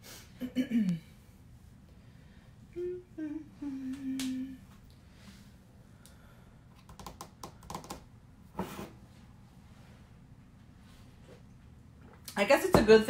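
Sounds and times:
woman humming: 0.4 - 1.1, 2.7 - 4.8.

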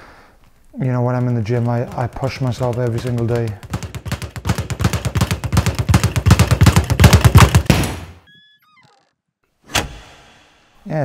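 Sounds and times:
speed bag rattling: 0.8 - 8.0.

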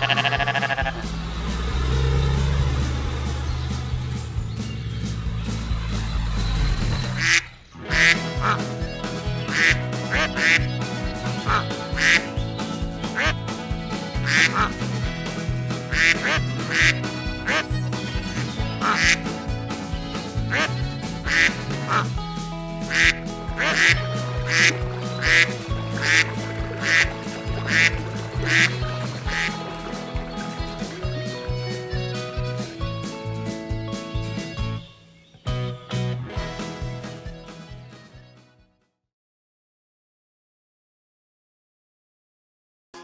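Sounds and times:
ducks quacking: 0.0 - 22.2, 22.8 - 34.8
background music: 0.0 - 38.7.

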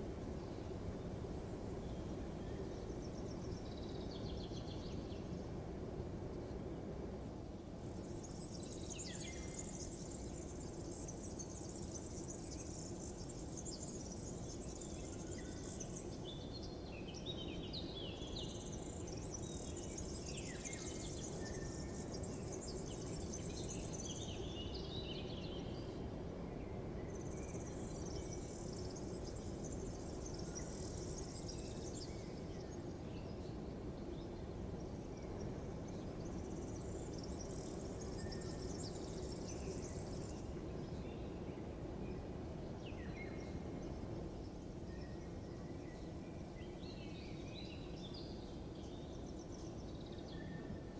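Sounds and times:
high insect trills: 7.8 - 16.6.

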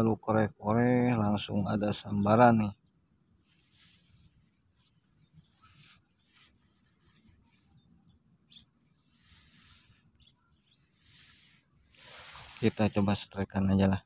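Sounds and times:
soft rustles: 3.4 - 13.3.

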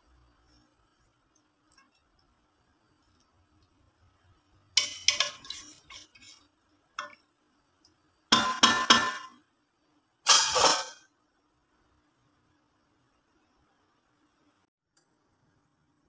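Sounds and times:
kitchenware clattering against pot: 4.8 - 6.3, 8.3 - 9.4, 10.3 - 11.0.

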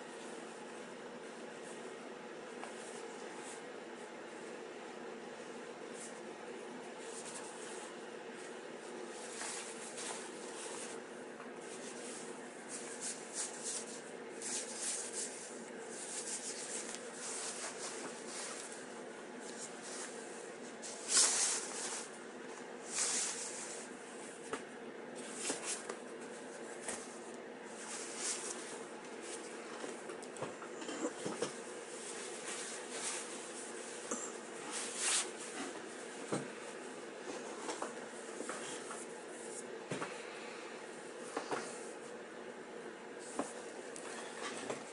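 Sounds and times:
steady low hum: 0.0 - 44.9
fabric rustling: 7.0 - 22.2.

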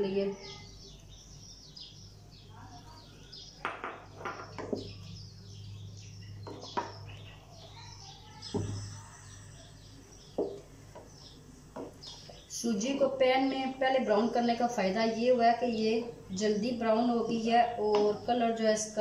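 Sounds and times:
small birds chirping: 0.0 - 19.0
wooden spatula knocking on pot: 11.7 - 12.0.

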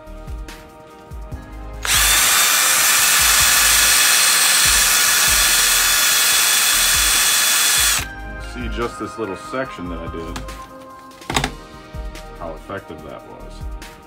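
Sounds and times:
cordless drill motor whine: 1.8 - 8.1.

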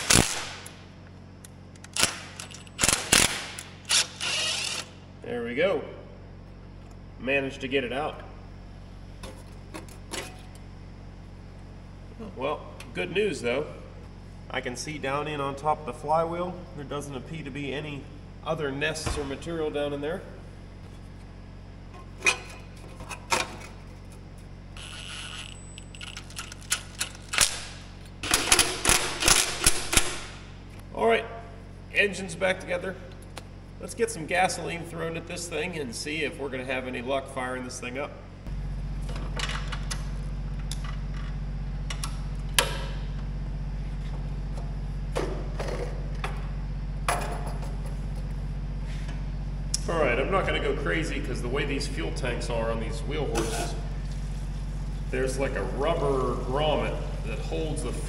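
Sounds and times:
steady low hum: 0.0 - 58.0
impact driver whirring: 1.9 - 5.0.

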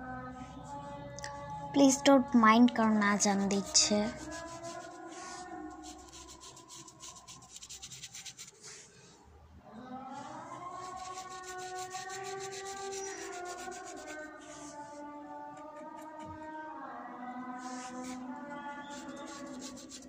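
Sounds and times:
brush scrubbing on paper: 3.4 - 8.9, 10.7 - 16.1, 17.6 - 20.0.

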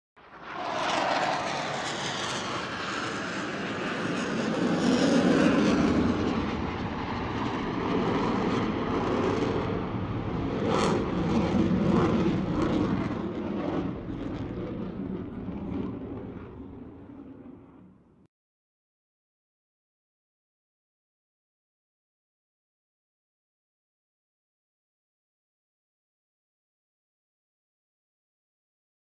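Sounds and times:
jet roar: 0.2 - 18.3.

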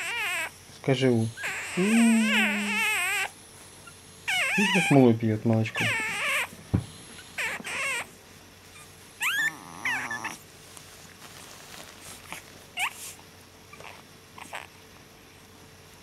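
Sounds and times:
dog whimpering squeaks: 0.0 - 0.6, 1.3 - 5.1, 5.7 - 6.6, 7.2 - 10.4, 12.8 - 14.7.

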